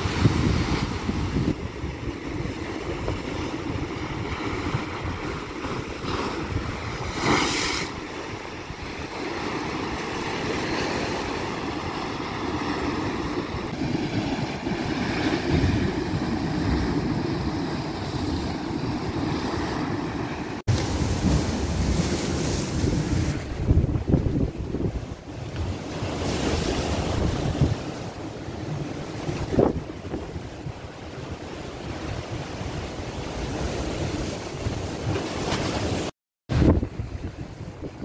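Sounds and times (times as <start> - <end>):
wind buffeting microphone: 0.0 - 7.2, 20.6 - 38.0
sea surf breaking on concrete: 0.0 - 29.9.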